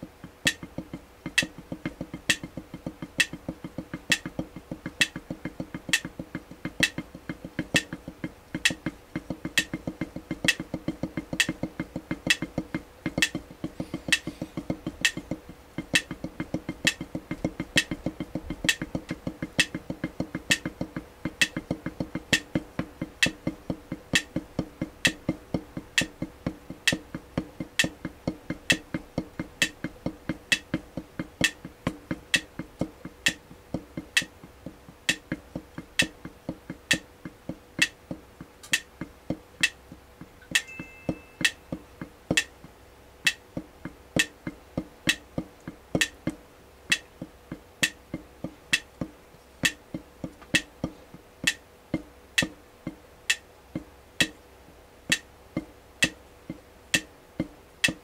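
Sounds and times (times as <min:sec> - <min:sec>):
drumstick on practice pad: 0:00.0 - 0:58.0.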